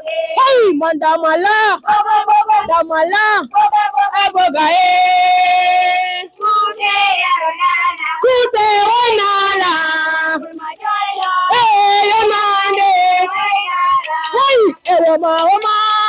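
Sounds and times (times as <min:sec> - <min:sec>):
high voices singing: 0:00.0 - 0:16.0.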